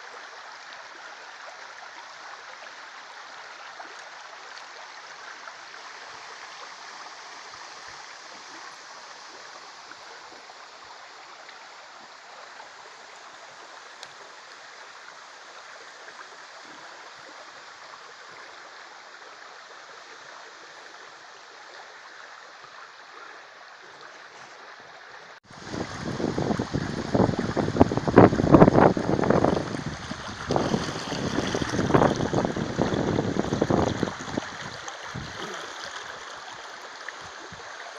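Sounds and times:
river water rippling over stones: 0:00.0 - 0:37.9
low rumbling on microphone: 0:25.6 - 0:35.4.

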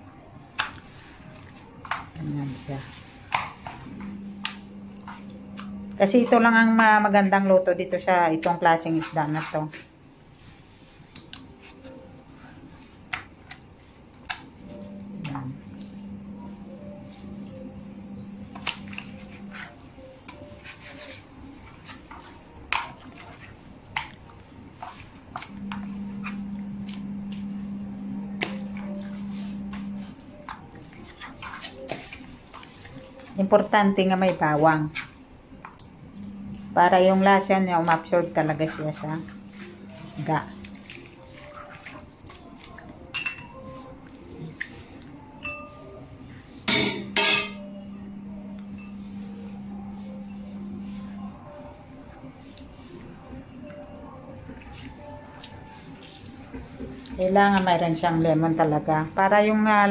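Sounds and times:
low steady hum: 0:00.0 - 0:10.7, 0:11.6 - 0:59.9
steady low hum: 0:03.7 - 0:07.1, 0:14.6 - 0:20.6, 0:23.7 - 0:30.4, 0:35.2 - 0:41.6, 0:46.0 - 0:52.4
hands squishing seasoning into fish: 0:18.5 - 0:27.1, 0:28.4 - 0:33.5, 0:40.6 - 0:43.0, 0:54.4 - 0:57.6
kitchenware clinking: 0:43.1 - 0:43.7, 0:45.4 - 0:45.9, 0:46.7 - 0:47.7.

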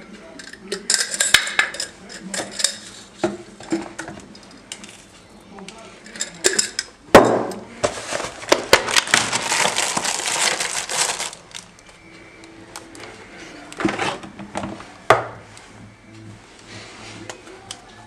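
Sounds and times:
plastic packaging crinkling: 0:07.9 - 0:12.0.

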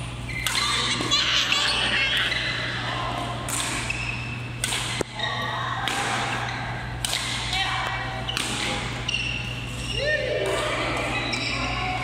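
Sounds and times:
sneakers squeaking on court: 0:00.1 - 0:01.1, 0:01.7 - 0:02.8, 0:03.4 - 0:05.6, 0:08.2 - 0:12.0
rackets hitting shuttlecock: 0:00.3 - 0:01.1, 0:03.2 - 0:11.4.

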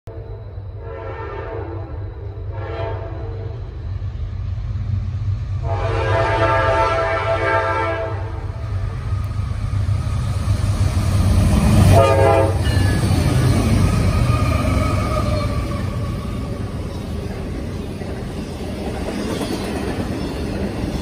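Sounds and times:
train cars rolling on rails: 0:00.1 - 0:21.0
locomotive air horn: 0:00.8 - 0:03.6, 0:05.6 - 0:08.4, 0:11.8 - 0:12.7.

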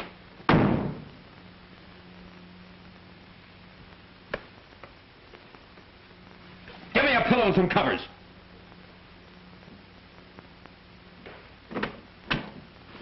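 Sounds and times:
film soundtrack hum and hiss: 0:00.0 - 0:13.0
loud thump: 0:00.5 - 0:01.1.

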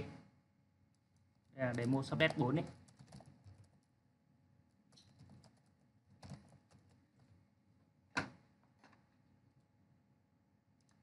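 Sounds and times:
keyboard typing: 0:00.9 - 0:04.0, 0:04.9 - 0:07.3.

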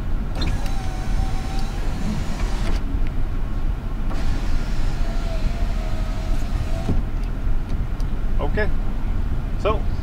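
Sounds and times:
power window motor whining: 0:00.3 - 0:02.8, 0:04.1 - 0:07.2.

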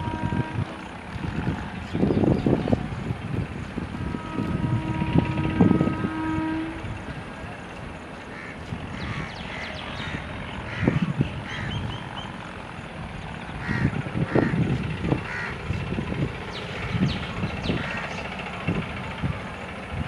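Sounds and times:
train horn: 0:00.0 - 0:01.4, 0:03.3 - 0:07.2
train rumbling on rails: 0:00.0 - 0:20.0
bird calling: 0:08.3 - 0:12.5, 0:16.5 - 0:18.6.

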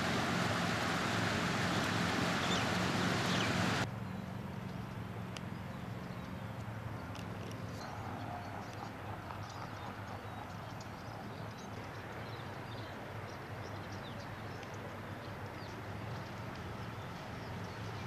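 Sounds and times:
low steady hum: 0:00.0 - 0:03.9
bird chirps: 0:01.6 - 0:03.8.

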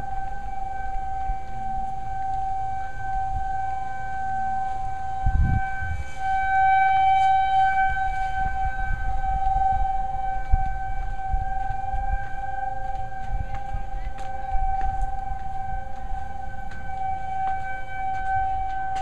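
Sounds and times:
tornado siren wailing: 0:00.0 - 0:19.0.

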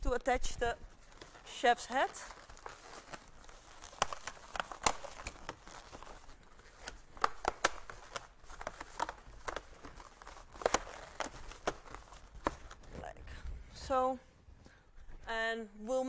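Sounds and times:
balloons squeaking and rubbing: 0:00.4 - 0:13.3.

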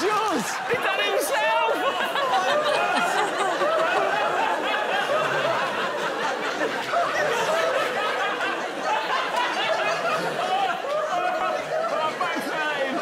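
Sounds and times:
voices talking over one another: 0:00.0 - 0:03.5
audience laughing: 0:00.0 - 0:13.0.

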